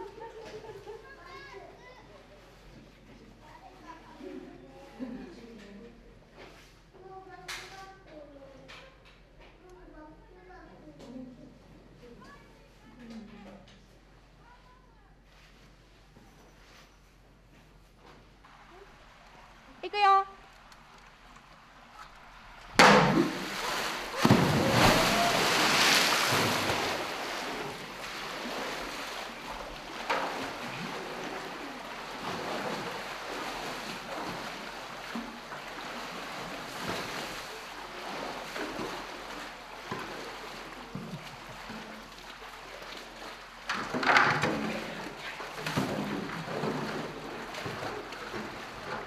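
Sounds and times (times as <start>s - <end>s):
water sloshing and splashing: 18.2s - 49.0s
toy splashing into water: 22.8s - 27.0s.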